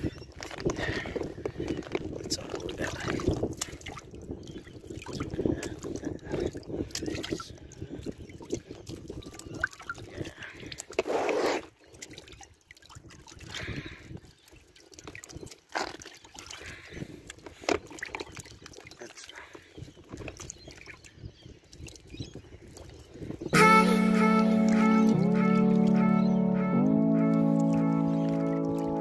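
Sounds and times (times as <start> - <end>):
water sloshing in a bucket: 0.4 - 23.0.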